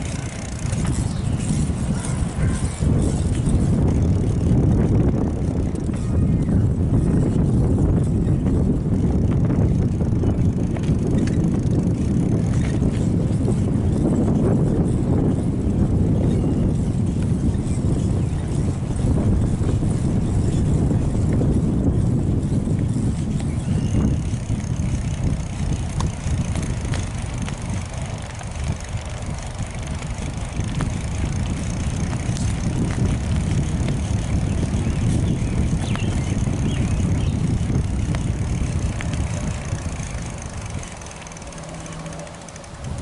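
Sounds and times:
bicycle tyre noise: 0:00.0 - 0:43.0
wind rumbling on microphone: 0:00.0 - 0:43.0
light clicks from bike: 0:22.8 - 0:43.0.

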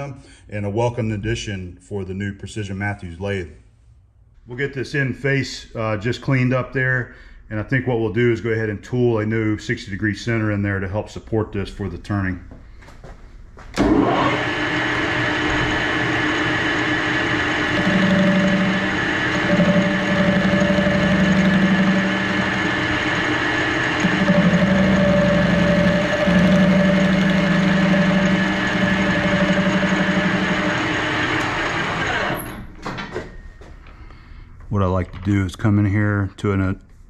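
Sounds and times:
turning tool cutting steel: 0:13.8 - 0:32.6
metal lathe running: 0:13.8 - 0:32.7.

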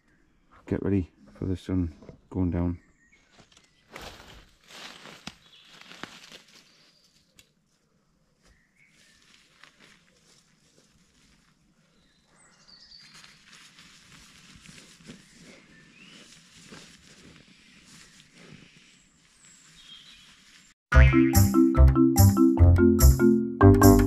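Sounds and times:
rustling and handling noise: 0:03.4 - 0:07.8, 0:08.4 - 0:11.7
birds chirping: 0:11.8 - 0:13.6, 0:15.0 - 0:20.7.

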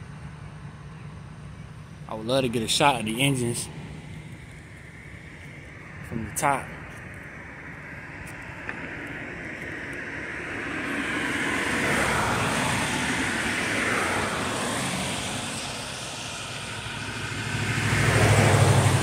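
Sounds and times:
low engine hum: 0:00.0 - 0:19.0
vehicle rushing past: 0:08.9 - 0:19.0.

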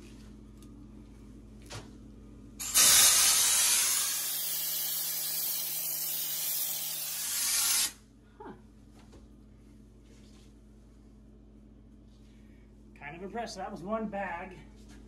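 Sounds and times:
spray gun hissing: 0:02.6 - 0:08.0.

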